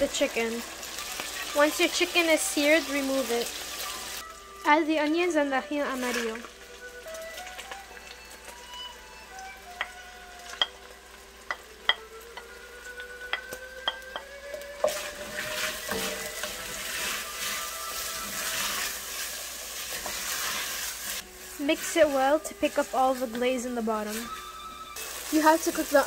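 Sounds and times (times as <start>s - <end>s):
onions sizzling in oil: 0.0s - 26.0s
wooden spoon tapping pot: 11.5s - 12.5s, 13.3s - 15.0s.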